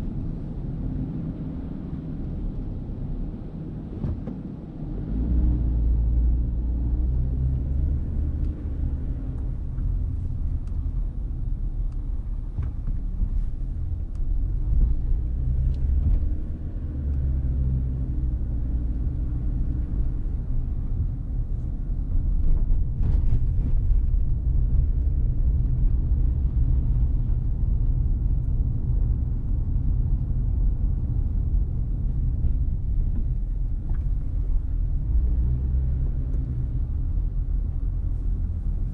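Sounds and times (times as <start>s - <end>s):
car driving slowly: 0.0s - 38.9s.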